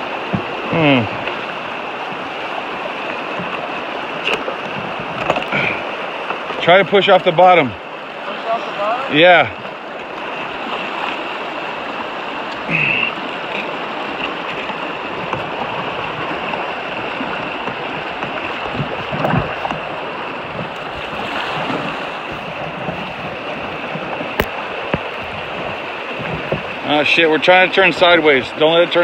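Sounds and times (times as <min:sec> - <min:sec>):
canoe knocking on rocks: 0:00.0 - 0:06.7, 0:13.6 - 0:26.8
river rapid rushing water: 0:00.0 - 0:29.0.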